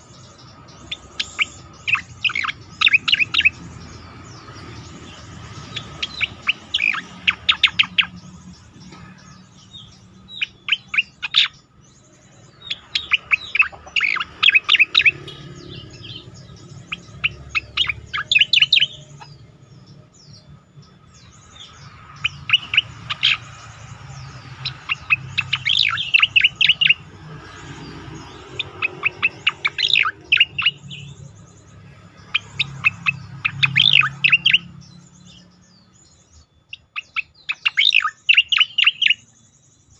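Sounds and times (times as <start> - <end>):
bird rapid sharp chirping: 0.0 - 39.9.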